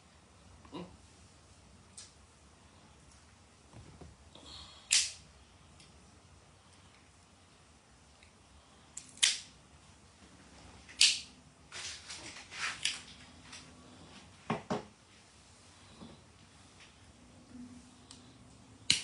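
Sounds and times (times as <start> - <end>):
scraping rustles: 11.7 - 14.3.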